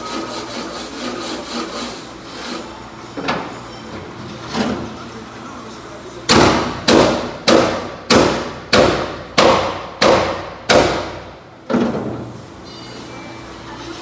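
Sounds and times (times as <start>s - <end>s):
hammer striking steel plate: 6.3s - 11.2s.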